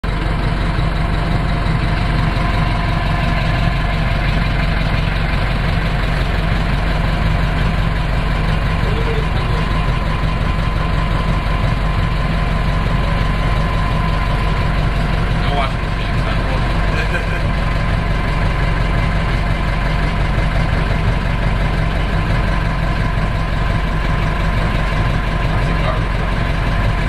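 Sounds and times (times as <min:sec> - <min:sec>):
motorboat engine droning: 0:00.0 - 0:27.0.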